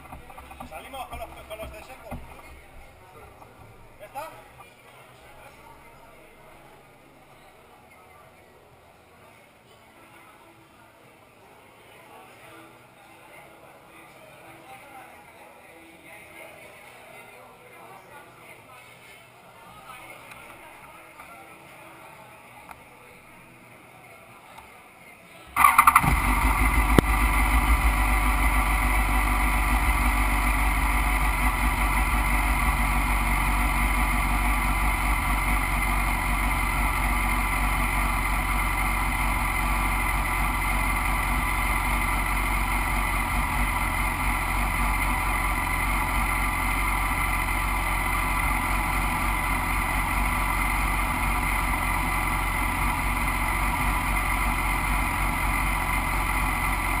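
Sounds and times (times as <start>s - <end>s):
motorcycle engine starting and idling: 0.0s - 4.2s, 25.6s - 57.0s.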